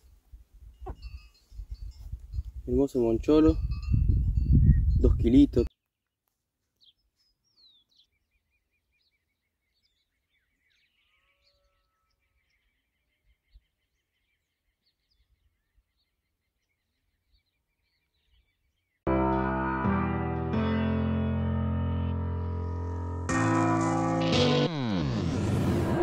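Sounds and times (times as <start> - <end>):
faint birdsong chirps: 5.7 - 19.1.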